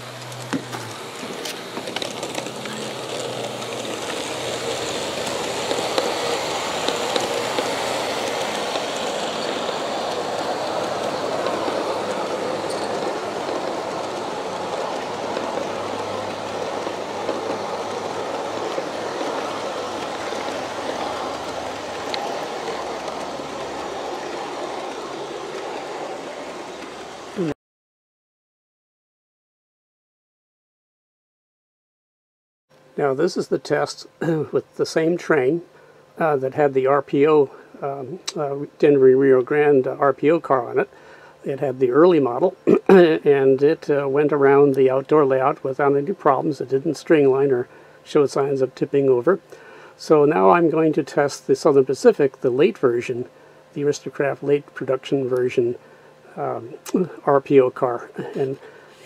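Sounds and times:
model train wheels rumbling: 0:00.0 - 0:27.6, 0:36.2 - 0:59.0
sharp clicks of track: 0:00.2 - 0:11.9, 0:20.0 - 0:25.7.

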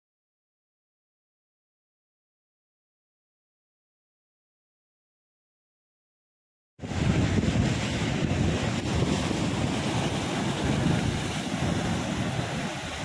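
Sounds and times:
waves breaking against rocks: 0:06.8 - 0:13.0
wind buffeting microphone: 0:06.8 - 0:13.0.

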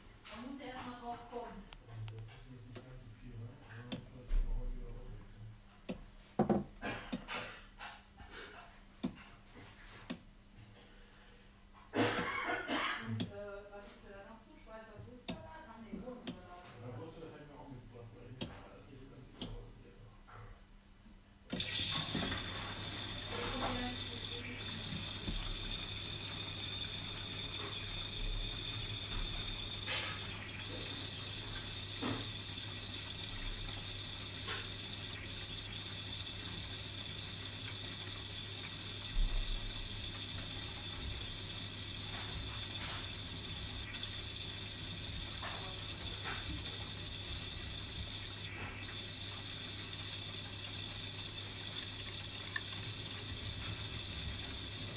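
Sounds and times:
water rushing into drum: 0:21.5 - 0:54.9.

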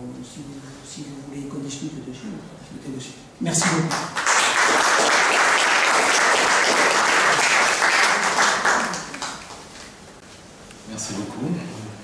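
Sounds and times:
audience applauding: 0:03.6 - 0:09.9.

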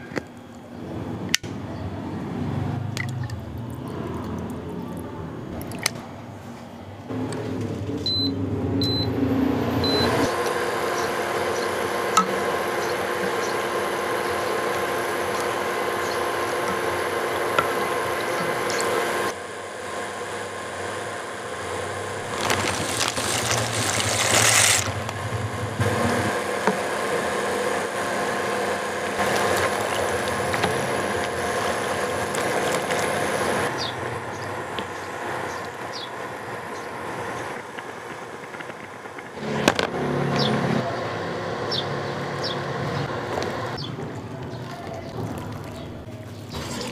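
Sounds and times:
water boiling in a pot: 0:10.3 - 0:25.2, 0:25.8 - 0:39.4.

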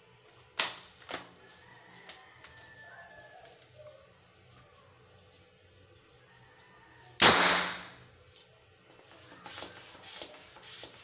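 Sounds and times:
toy gun bang: 0:07.2 - 0:08.0.

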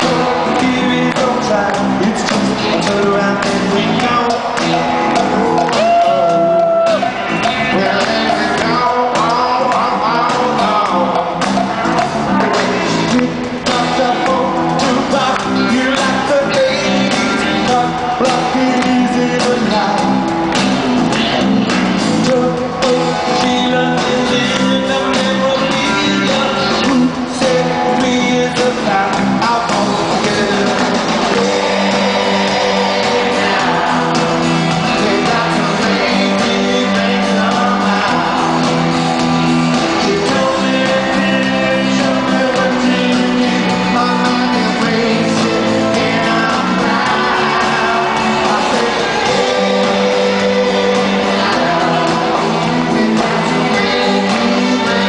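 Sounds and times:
live rock band playing: 0:00.0 - 0:55.0.

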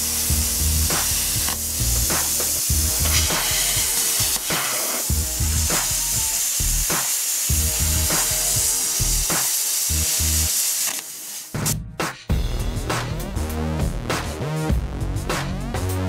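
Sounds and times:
plasma cutter hissing and crackling: 0:00.0 - 0:11.8
background music with beat: 0:00.0 - 0:16.0.

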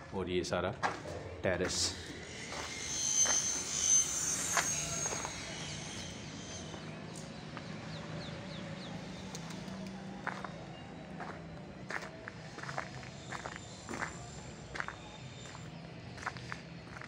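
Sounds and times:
steady low hum: 0:00.0 - 0:17.0
birds chirping: 0:00.1 - 0:17.0
footsteps on concrete: 0:00.8 - 0:01.9, 0:02.5 - 0:03.4.

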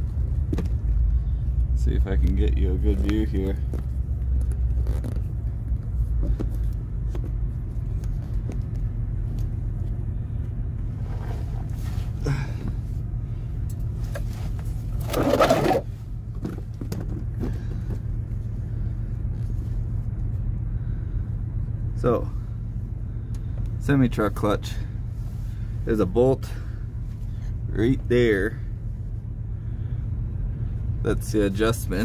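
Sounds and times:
engine idling: 0:00.0 - 0:32.0
loud rustling scrape: 0:10.9 - 0:12.2, 0:14.2 - 0:16.0.

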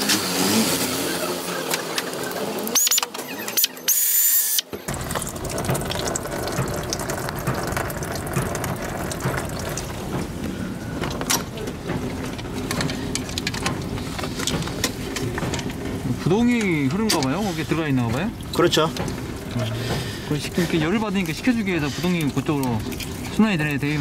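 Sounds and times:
coolant dripping into pan: 0:04.9 - 0:24.0.

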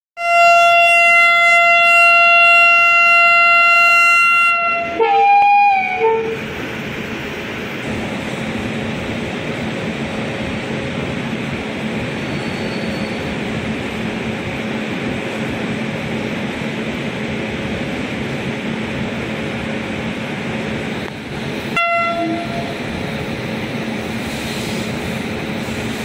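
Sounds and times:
locomotive horn blast: 0:00.2 - 0:06.4, 0:21.8 - 0:22.7
train moving: 0:00.2 - 0:26.0.

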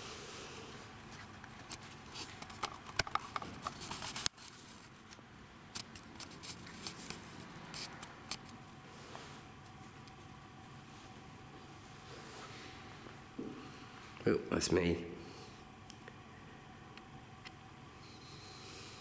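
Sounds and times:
camcorder handling clicks and rustles: 0:01.7 - 0:04.4.

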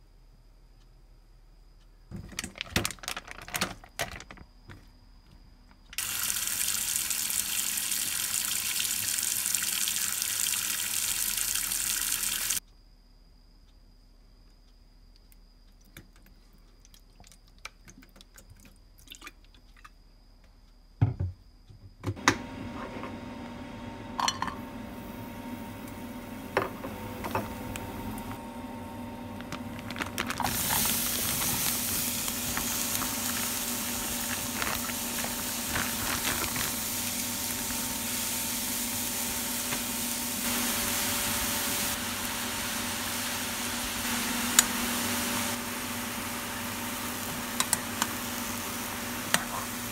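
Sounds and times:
faint ticks: 0:12.6 - 0:17.8
steady hum: 0:22.2 - 0:49.9
steady hiss: 0:30.4 - 0:49.9.

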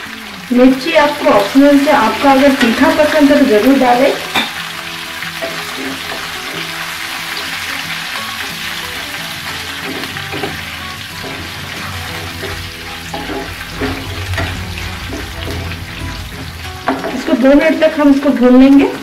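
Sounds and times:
oil sizzling in a frying pan: 0:00.0 - 0:19.0
soft background music: 0:00.0 - 0:19.0
wooden spatula scraping and stirring: 0:09.8 - 0:17.6.

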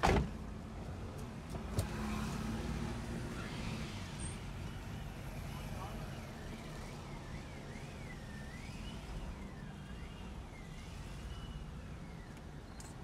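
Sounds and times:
road rumble: 0:00.0 - 0:13.0
faint siren-like wail: 0:03.2 - 0:13.0.

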